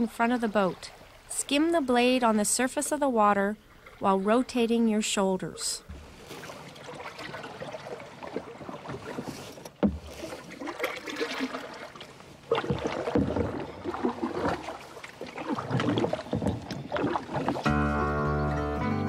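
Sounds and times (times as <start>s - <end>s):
canoe paddle swishing through water: 5.9s - 18.2s.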